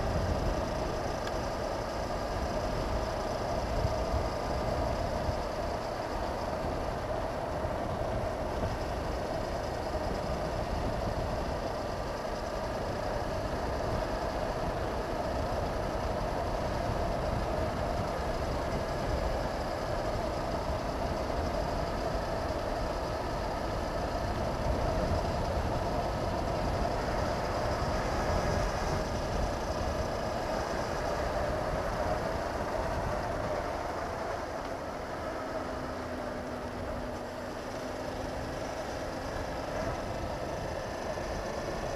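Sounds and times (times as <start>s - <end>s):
motorcycle engine running: 0.0s - 41.9s
wind rushing over camera: 0.0s - 41.9s.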